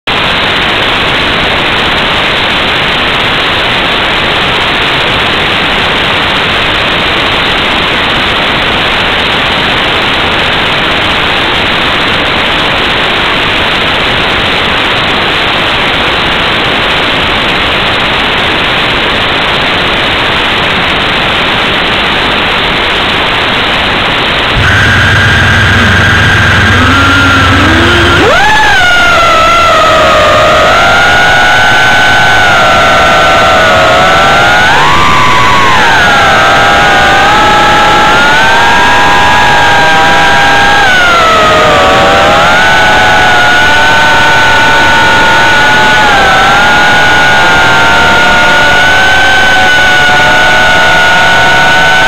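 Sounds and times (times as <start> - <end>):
loud static hiss: 0.1 - 52.0
steady and wavering tones: 24.6 - 30.5.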